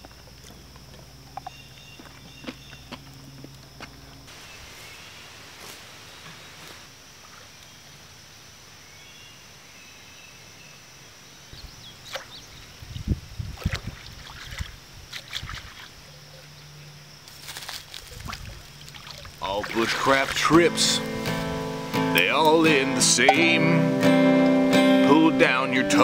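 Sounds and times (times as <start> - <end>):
pond water splashing: 13.6 - 16.0, 17.4 - 23.8.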